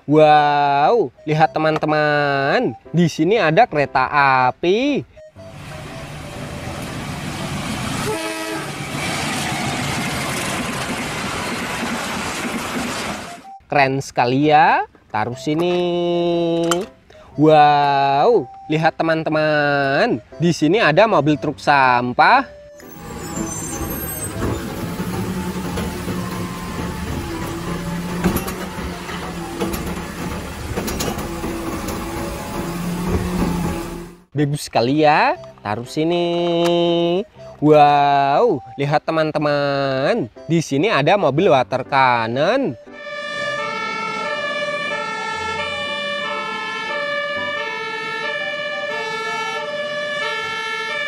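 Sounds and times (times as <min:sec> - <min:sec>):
truck engine and hydraulics hum: 0:04.5 - 0:13.7, 0:19.8 - 0:34.4
sharp clicks and knocks: 0:24.3 - 0:32.3.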